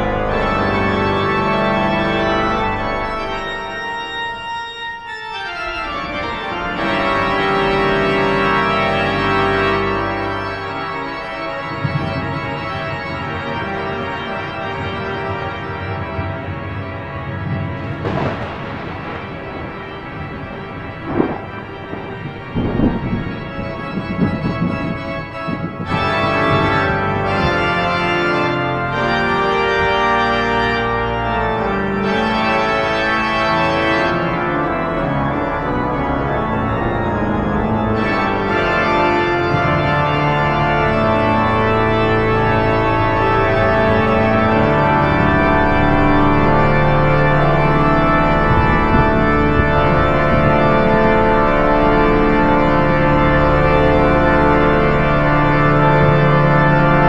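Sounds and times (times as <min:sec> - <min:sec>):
organ playing held chords: 0:00.0 - 0:57.0
rumble of thunder: 0:09.1 - 0:30.2, 0:39.5 - 0:57.0.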